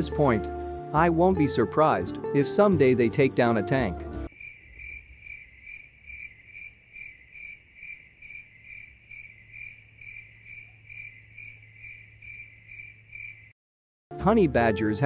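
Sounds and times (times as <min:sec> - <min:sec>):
crickets chirping: 0:04.3 - 0:13.6.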